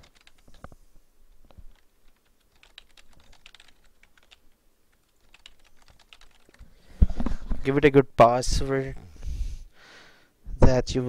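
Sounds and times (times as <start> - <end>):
keyboard keys clicking: 0.0 - 0.7, 1.7 - 6.6.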